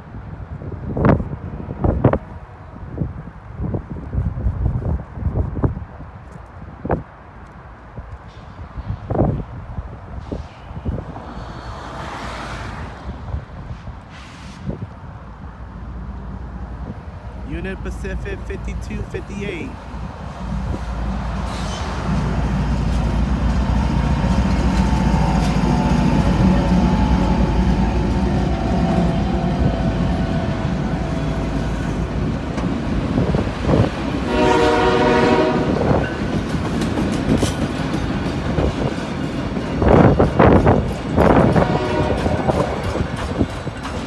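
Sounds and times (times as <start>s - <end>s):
diesel locomotive rumble: 12.8s - 44.0s
freight cars rattling over rails: 19.8s - 34.3s, 35.7s - 44.0s
train horn: 23.6s - 31.7s, 34.3s - 36.0s, 41.4s - 42.9s.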